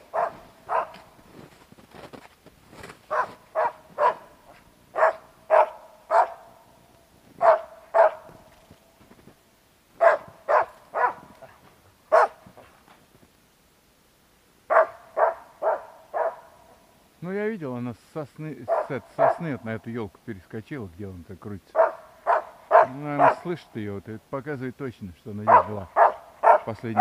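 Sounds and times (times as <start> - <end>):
dog barking: 0.0 - 1.1, 3.1 - 6.6, 7.4 - 8.4, 10.0 - 12.7, 14.7 - 16.6, 18.7 - 19.4, 21.7 - 23.5, 25.5 - 27.0.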